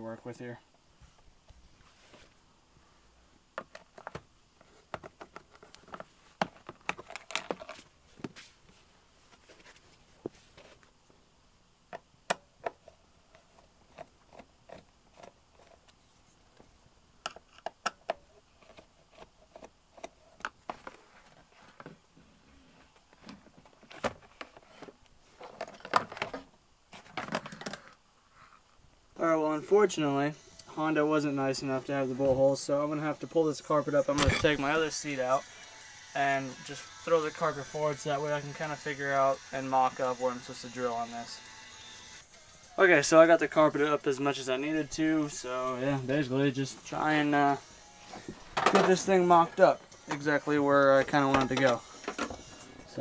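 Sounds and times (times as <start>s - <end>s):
plastic scraping and rattling: 4.9s - 7.9s, 23.2s - 28.0s.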